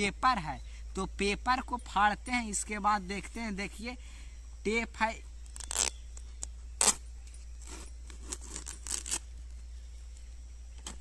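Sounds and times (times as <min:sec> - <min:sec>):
tape tearing off cardboard: 0:05.4 - 0:07.0, 0:07.6 - 0:09.3.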